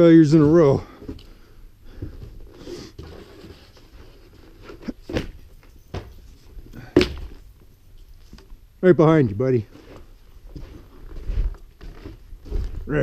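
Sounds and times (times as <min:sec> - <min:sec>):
faint scuffing: 0:09.7 - 0:13.0.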